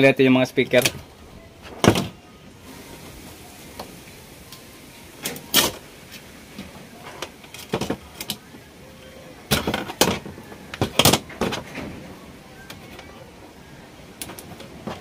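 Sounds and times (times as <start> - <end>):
clicks and knocks of wires: 6.6 - 8.4, 9.5 - 12.1.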